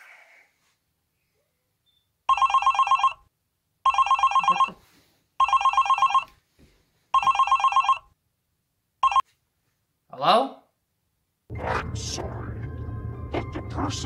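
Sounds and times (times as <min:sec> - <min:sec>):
telephone ringing with electronic trill: 0:02.3 - 0:03.2, 0:03.9 - 0:04.8, 0:05.4 - 0:06.3, 0:07.2 - 0:08.1, 0:09.0 - 0:09.2.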